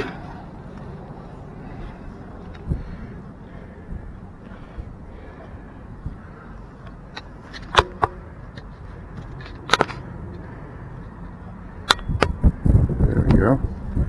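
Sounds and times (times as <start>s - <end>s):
low outdoor rumble: 0.0s - 14.0s
sharp handling clicks and knocks: 6.8s - 10.4s.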